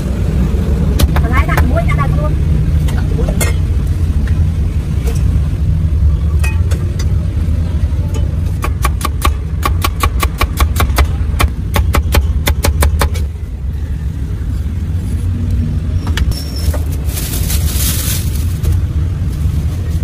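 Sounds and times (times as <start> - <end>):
traffic rumble: 0.0 - 20.0
plastic bag rustling: 16.4 - 20.0.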